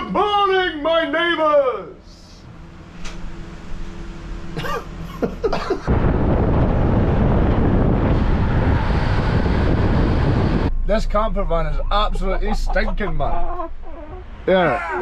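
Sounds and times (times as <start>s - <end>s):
person coughing or grunting: 4.6s - 5.9s
wind and road noise through car window: 5.6s - 14.5s.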